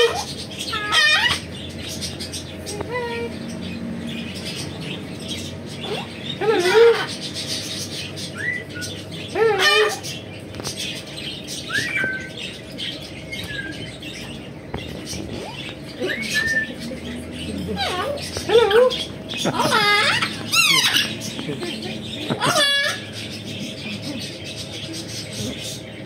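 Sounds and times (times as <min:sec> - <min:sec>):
parrot wavering calls: 0:00.0 - 0:02.2, 0:05.3 - 0:10.2, 0:11.6 - 0:12.6, 0:17.6 - 0:21.4, 0:22.0 - 0:23.8
parrot whistle-chirps: 0:11.6 - 0:12.4.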